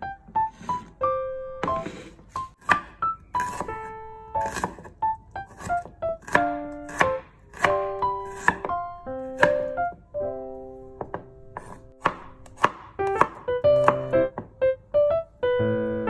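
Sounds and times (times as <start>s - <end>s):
background piano music: 0.0s - 16.0s
knife chopping on wooden board: 1.6s - 3.8s, 4.4s - 8.8s, 9.4s - 9.8s, 11.0s - 14.5s.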